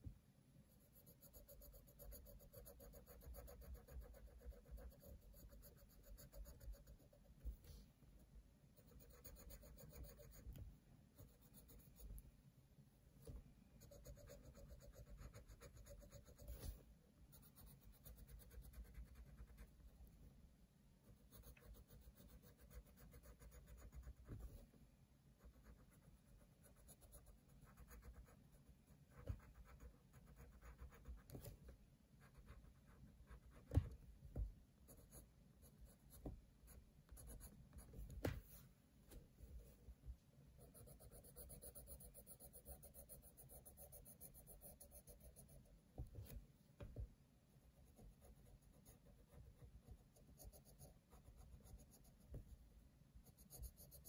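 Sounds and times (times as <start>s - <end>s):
pencil scratching on paper: 0.7s - 7.8s, 8.8s - 10.6s, 11.2s - 12.2s, 13.3s - 19.9s, 21.0s - 24.7s, 25.4s - 31.6s, 34.8s - 38.6s, 40.6s - 46.4s, 47.6s - 52.6s, 53.2s - 54.0s.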